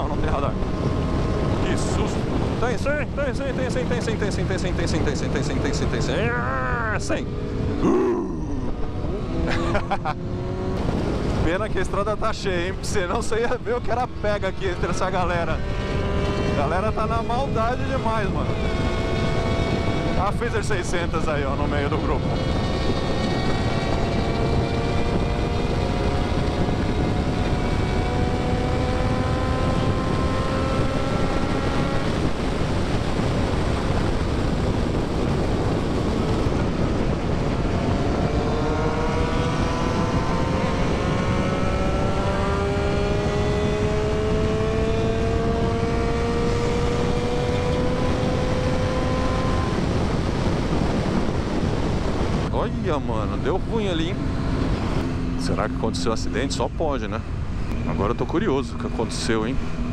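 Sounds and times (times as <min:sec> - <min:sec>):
motorcycle engine at speed: 0:00.0 - 0:59.9
rush of wind: 0:00.0 - 0:59.9.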